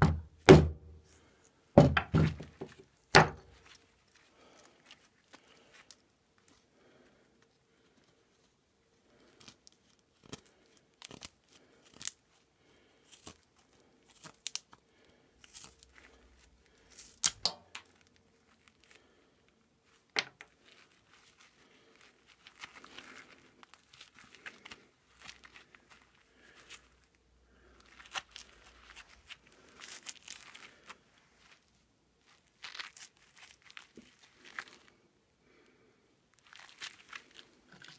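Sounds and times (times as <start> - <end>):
sharp knocks: 0.0 - 0.8, 1.8 - 2.6
knife carving wood: 9.3 - 12.2.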